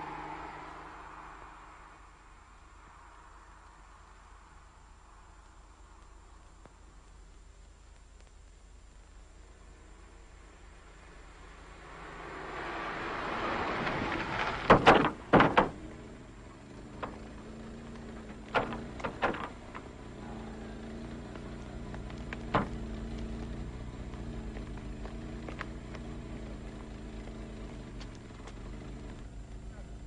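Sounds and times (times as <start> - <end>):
car coming to a stop: 0.0 - 7.3, 9.0 - 30.0
engine idling faintly: 0.0 - 30.0
car doors slamming: 14.2 - 16.2, 16.8 - 20.0, 22.4 - 23.0
door clicks and knocks: 14.6 - 16.0, 17.0 - 17.4, 18.2 - 19.9, 22.4 - 22.8.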